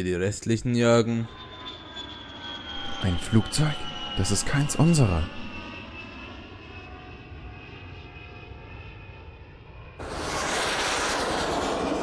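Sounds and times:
propeller plane engine droning: 0:00.2 - 0:12.0
rush of wind: 0:10.0 - 0:12.0.

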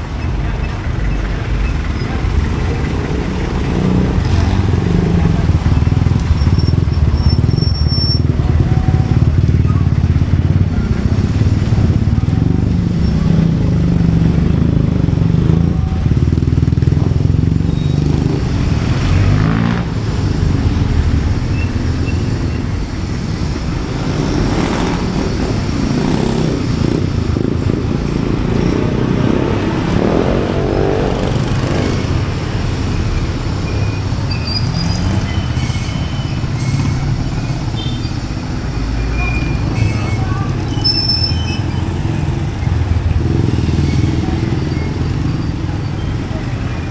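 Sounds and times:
motorcycle engines running: 0:00.0 - 0:46.9.

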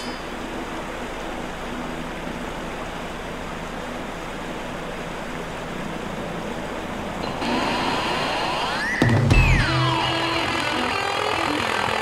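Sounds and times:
rising whine: 0:00.0 - 0:12.0.

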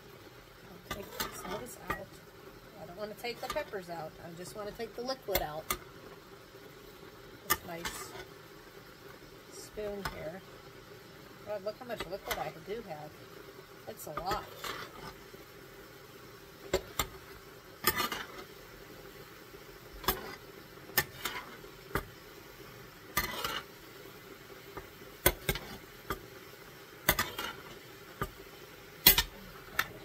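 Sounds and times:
faint simmering: 0:00.0 - 0:30.0
spoon scraping a pan: 0:00.7 - 0:02.2, 0:02.8 - 0:05.9, 0:07.5 - 0:08.4, 0:09.6 - 0:10.4, 0:11.6 - 0:12.7, 0:13.9 - 0:15.4, 0:16.7 - 0:18.6, 0:19.9 - 0:22.2, 0:23.1 - 0:26.3, 0:27.0 - 0:28.4, 0:29.0 - 0:30.0.

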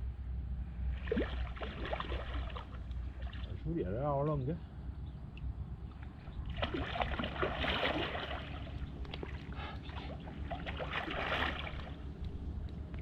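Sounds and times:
steady low rumble: 0:00.0 - 0:13.0
water splashing and sloshing: 0:00.8 - 0:03.6, 0:05.8 - 0:13.0.

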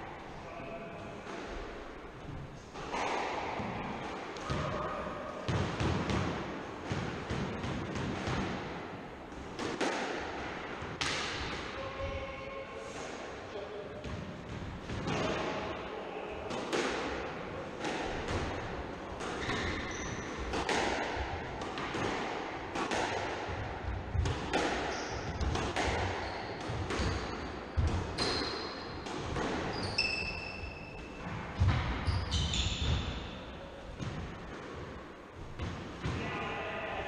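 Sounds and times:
squash ball cracking off rackets: 0:17.8 - 0:29.8
shoes squeaking on wooden floor: 0:29.7 - 0:31.0.

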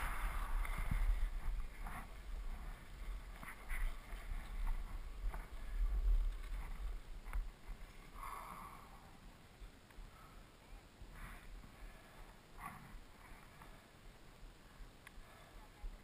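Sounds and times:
wind rumbling on microphone: 0:00.0 - 0:09.7.

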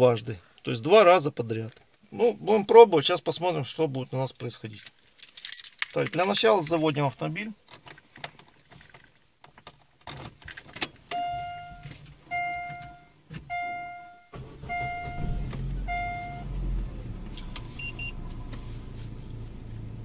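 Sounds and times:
keys jingling: 0:04.7 - 0:06.4
car engine starting and idling: 0:11.0 - 0:20.0
short electronic beeps: 0:11.2 - 0:16.4, 0:17.8 - 0:18.2.

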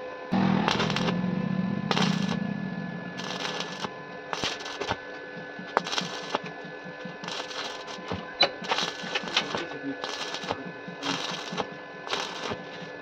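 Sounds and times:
faint steady hum: 0:00.0 - 0:13.0
welding arc crackling and popping: 0:00.4 - 0:01.2, 0:01.9 - 0:02.5, 0:03.2 - 0:05.0, 0:05.6 - 0:12.9.

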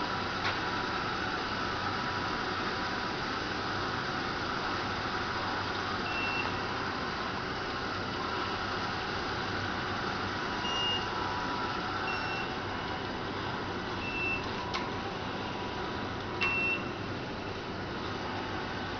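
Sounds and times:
short high beeps: 0:10.7 - 0:11.1, 0:12.1 - 0:12.5, 0:14.0 - 0:14.4, 0:16.4 - 0:16.9.

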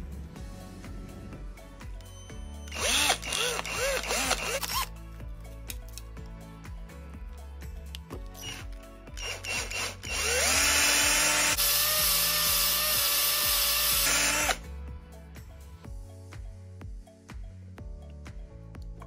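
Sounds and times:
background music: 0:00.0 - 0:19.0
cordless drill whining: 0:02.6 - 0:04.9, 0:08.4 - 0:14.6.

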